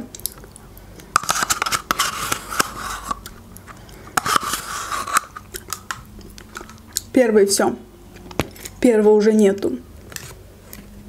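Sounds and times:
spoon scraping plastic cup: 1.2s - 6.9s.

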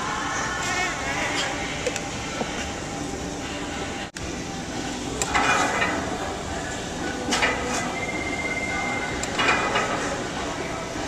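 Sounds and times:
exercise machine clanking: 9.3s - 10.2s.

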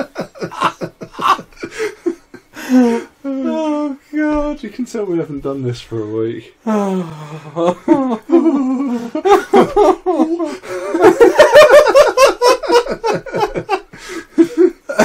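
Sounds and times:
men laughing: 0.0s - 3.9s, 7.3s - 15.0s.

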